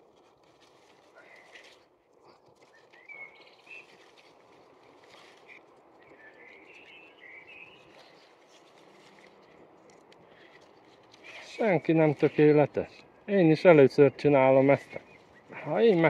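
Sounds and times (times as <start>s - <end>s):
small birds chirping: 2.3s - 4.5s, 5.1s - 9.6s, 10.3s - 16.0s.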